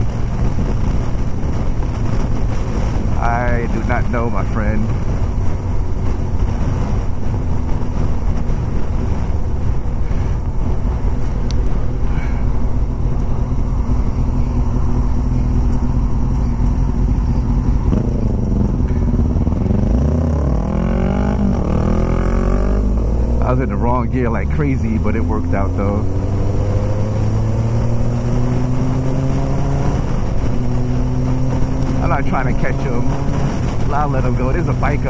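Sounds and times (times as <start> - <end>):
motorcycle engine accelerating: 0.0 - 35.0
wind rushing over microphone: 0.0 - 35.0.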